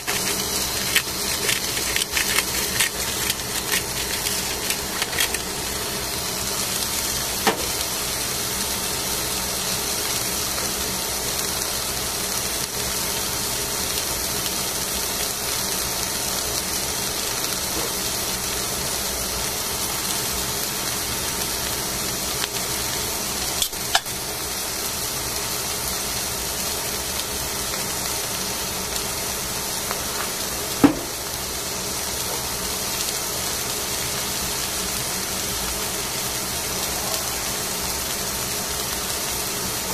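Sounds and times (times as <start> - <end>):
fish hissing on a grill: 0.0 - 39.9.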